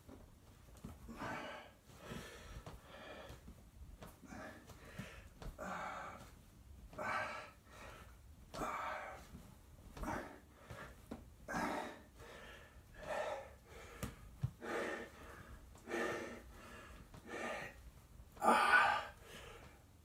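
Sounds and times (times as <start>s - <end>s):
person breathing hard: 1.0s - 20.0s.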